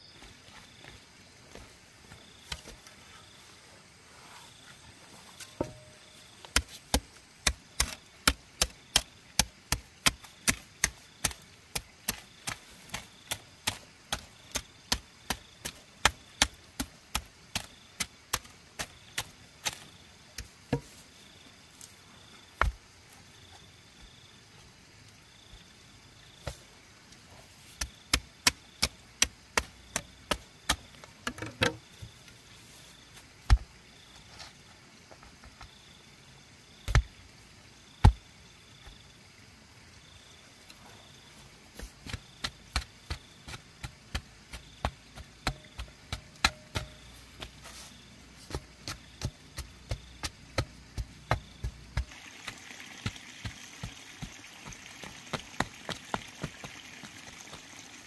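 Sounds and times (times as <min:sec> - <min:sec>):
hoe chopping into clay soil: 0:05.4 - 0:21.1, 0:22.5 - 0:22.9, 0:27.6 - 0:32.2, 0:33.4 - 0:33.7, 0:36.8 - 0:37.2, 0:41.8 - 0:57.9.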